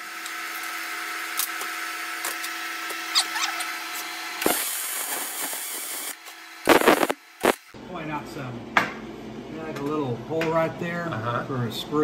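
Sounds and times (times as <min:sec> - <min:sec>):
welder arc crackling and hissing: 0:00.0 - 0:07.8
steady hum: 0:03.6 - 0:12.0.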